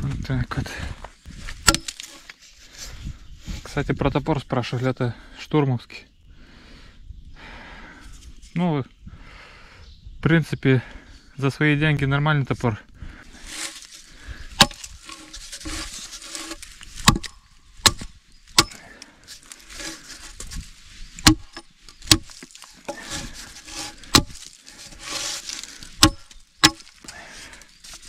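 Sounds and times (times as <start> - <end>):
hatchet chopping wood: 1.7 - 2.2, 14.6 - 19.0, 21.2 - 27.1.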